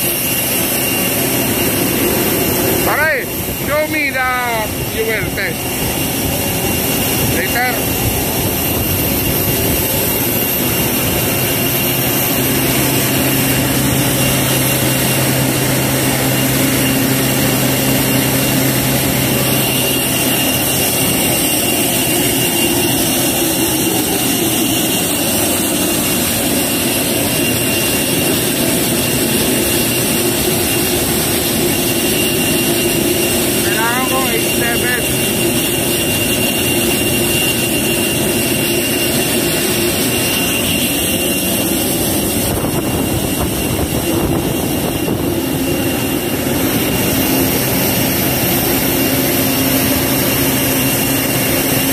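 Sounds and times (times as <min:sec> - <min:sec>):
engine and turbine drone: 0:00.0 - 0:51.9
thin high whine: 0:00.0 - 0:51.9.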